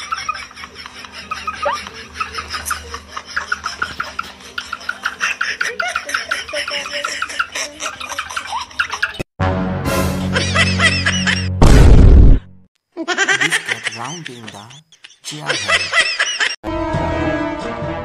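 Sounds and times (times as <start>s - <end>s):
person laughing: 0.0s - 9.2s, 10.3s - 11.5s, 13.0s - 16.6s
music: 9.4s - 11.6s, 16.6s - 18.0s.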